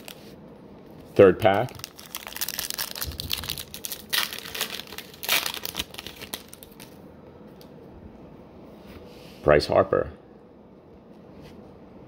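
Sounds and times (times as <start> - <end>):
foil wrapper tearing and crinkling: 0.0 - 0.2, 1.4 - 7.0.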